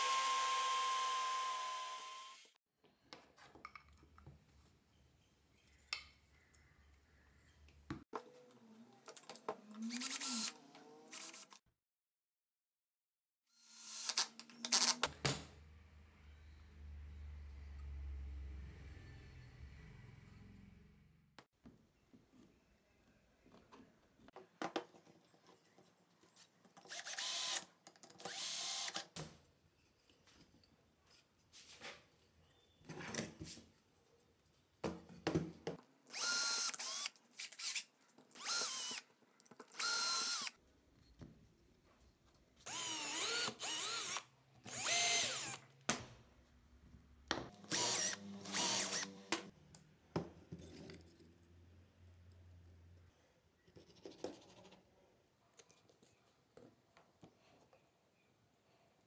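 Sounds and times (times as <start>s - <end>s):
electric drill drilling into wood: 0.0s - 2.6s, 9.9s - 10.5s, 13.7s - 14.9s, 26.9s - 27.6s, 28.3s - 29.0s, 36.1s - 37.8s, 38.4s - 39.0s, 39.7s - 40.6s, 42.7s - 45.6s, 47.6s - 49.5s.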